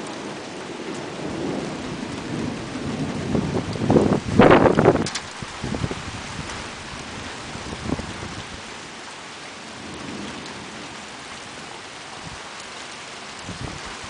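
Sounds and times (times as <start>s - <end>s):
low rumble of thunder: 0.0s - 8.8s, 13.4s - 14.0s
steady rain falling: 0.0s - 14.0s.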